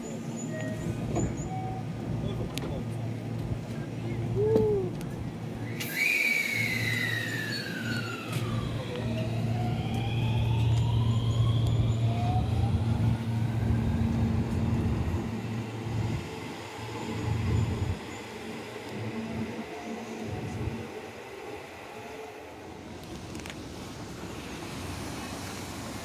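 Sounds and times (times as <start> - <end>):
electric train motors whining: 5.6 - 23.5.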